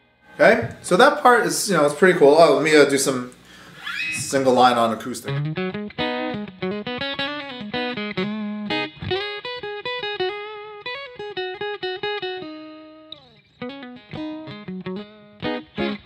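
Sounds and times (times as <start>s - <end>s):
guitar string scrape: 3.5s - 4.4s
guitar note sliding down: 3.6s - 4.7s
guitar single-note lines: 3.9s - 16.0s.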